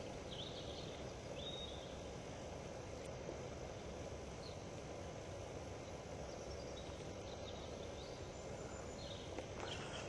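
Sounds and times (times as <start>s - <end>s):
steady background hiss: 0.0s - 10.0s.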